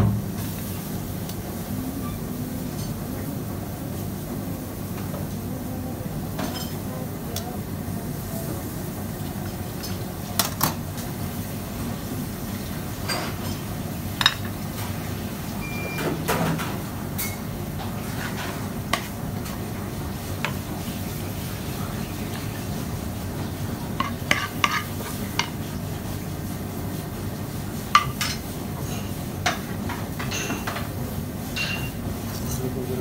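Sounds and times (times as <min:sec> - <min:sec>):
crockery and utensils clinking: 0:06.4 - 0:06.9, 0:31.5 - 0:32.7.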